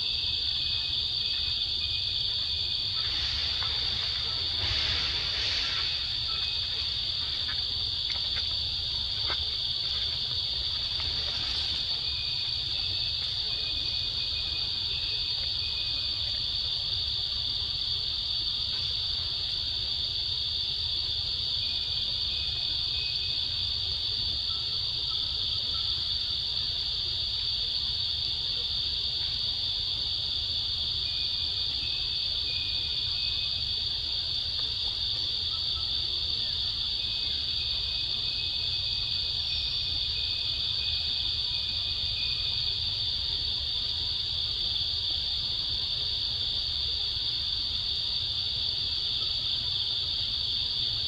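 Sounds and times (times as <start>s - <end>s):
forest insects droning: 0.0s - 51.0s.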